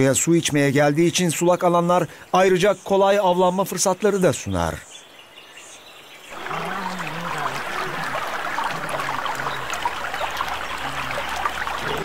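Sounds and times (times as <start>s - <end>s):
water trickling and splashing: 6.3s - 12.0s.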